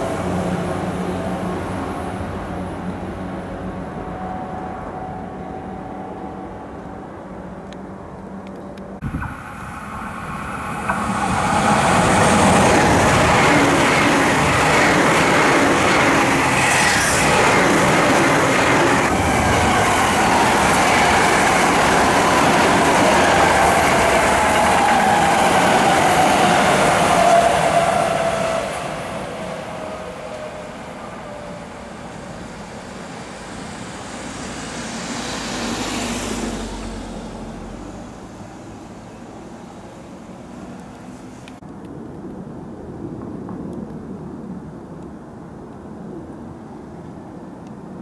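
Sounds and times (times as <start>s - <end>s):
train motor whine: 9.0s - 30.8s
electric train wheel noise: 9.0s - 41.6s.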